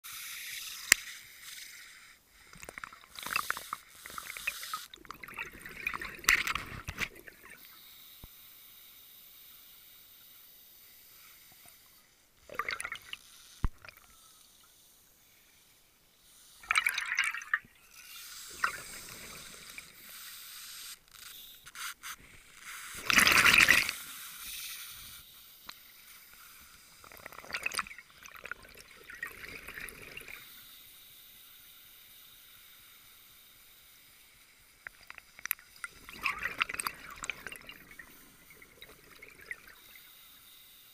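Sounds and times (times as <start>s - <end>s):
faint steady hiss: 0.0s - 40.9s
underwater exhaust bubbles: 2.6s - 7.6s, 12.5s - 14.0s, 35.1s - 40.0s.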